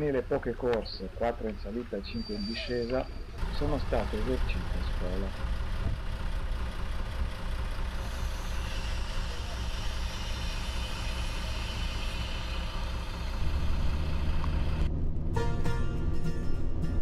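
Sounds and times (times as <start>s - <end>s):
diesel railcar idling: 0.0s - 17.0s.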